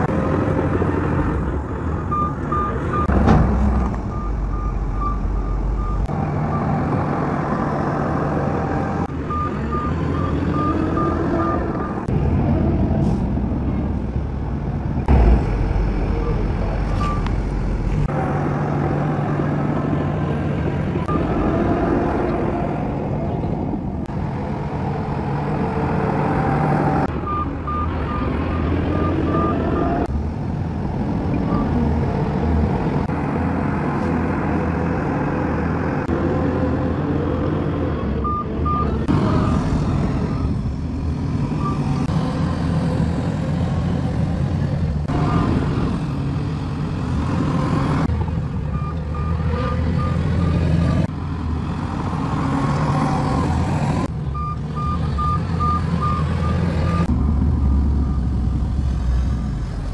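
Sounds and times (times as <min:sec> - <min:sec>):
diesel engines running under load: 0:00.0 - 0:59.9.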